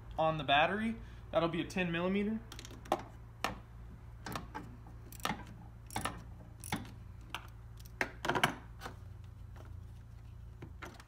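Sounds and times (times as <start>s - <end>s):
socket wrench clicking: 5.1s - 8.0s.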